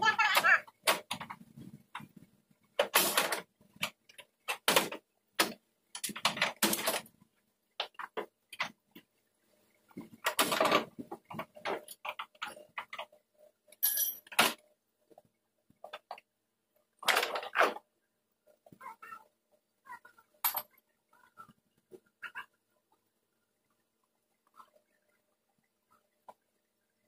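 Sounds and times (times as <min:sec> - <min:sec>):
plastic clips clicking and knocking: 0:02.8 - 0:07.1.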